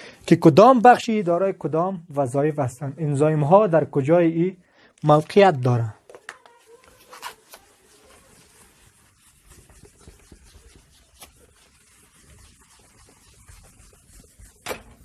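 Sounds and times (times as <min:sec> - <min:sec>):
whiteboard being wiped: 0:06.5 - 0:15.0.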